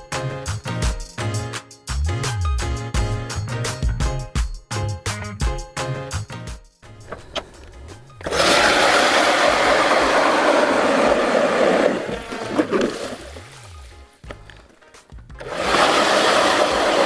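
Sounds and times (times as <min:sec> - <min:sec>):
background music with a beat: 0:00.0 - 0:08.2, 0:13.2 - 0:15.6
electric ice auger drilling ice: 0:08.2 - 0:13.7, 0:15.4 - 0:17.0.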